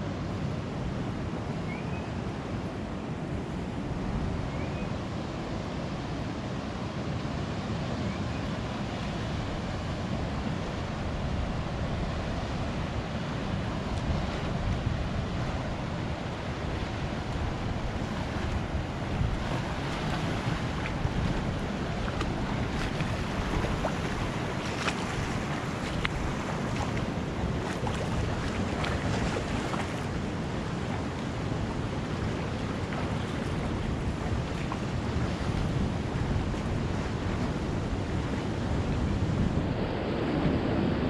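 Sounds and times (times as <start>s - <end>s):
ocean surf on a beach: 0.0s - 41.0s
wind on the microphone: 0.0s - 41.0s.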